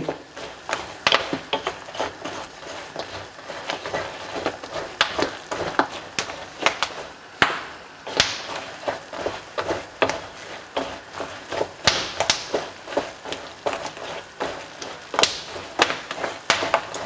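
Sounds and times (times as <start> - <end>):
spatula scraping pan: 0.0 - 7.2, 8.0 - 17.0.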